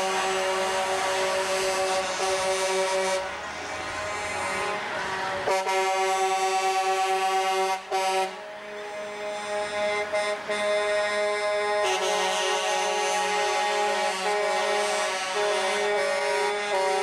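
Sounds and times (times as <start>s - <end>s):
truck air horn blasts: 0.0s - 17.0s.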